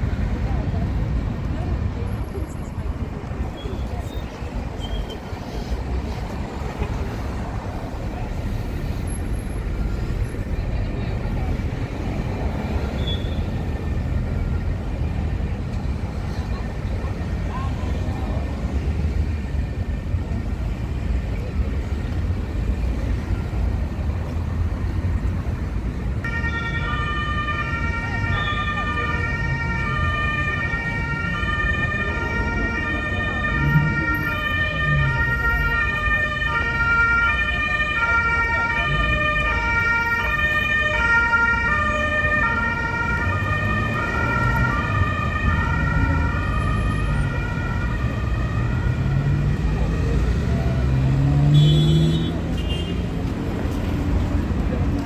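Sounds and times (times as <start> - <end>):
street traffic noise: 0.0 - 55.0
two-tone siren wail: 26.2 - 50.9.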